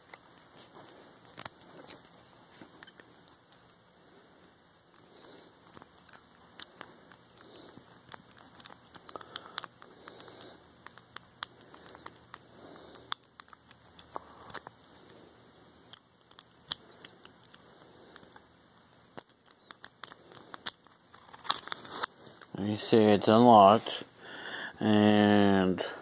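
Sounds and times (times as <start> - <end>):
fingers rustling: 0.0 - 24.1
lock pick clicking and scraping: 5.6 - 14.7, 19.2 - 22.1.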